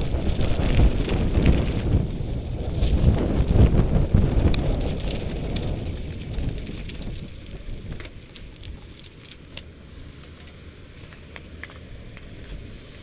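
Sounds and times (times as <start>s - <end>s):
bike clicks and rattles: 0.0s - 13.0s
bike tyre rumble: 0.0s - 13.0s
wind buffeting microphone: 0.0s - 13.0s.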